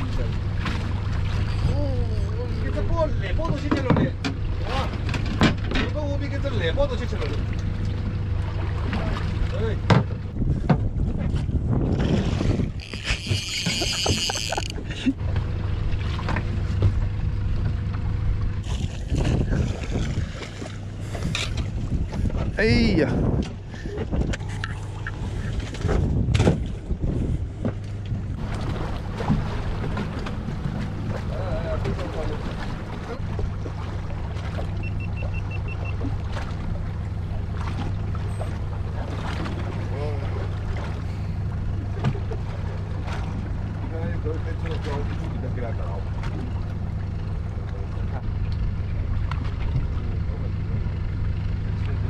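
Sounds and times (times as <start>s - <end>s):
water splashes: 0.0s - 23.2s, 23.8s - 52.0s
boat engine idling: 0.0s - 52.0s
wind noise on microphone: 10.2s - 14.4s, 18.7s - 20.4s, 21.2s - 28.4s
short high beeps: 34.8s - 36.0s.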